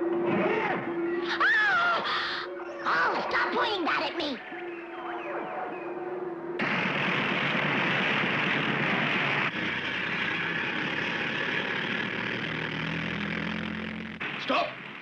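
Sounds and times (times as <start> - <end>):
low engine-like hum: 6.3 - 15.0.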